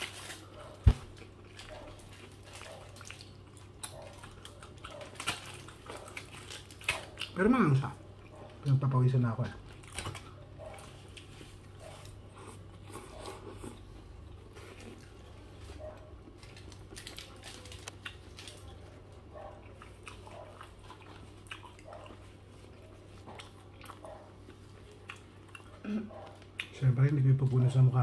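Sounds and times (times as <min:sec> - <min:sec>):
biting into foil-wrapped burger: 0:00.0 - 0:07.8, 0:09.6 - 0:26.8
close-up wet chewing: 0:00.0 - 0:08.8, 0:09.4 - 0:26.8
steady low hum: 0:00.0 - 0:28.0.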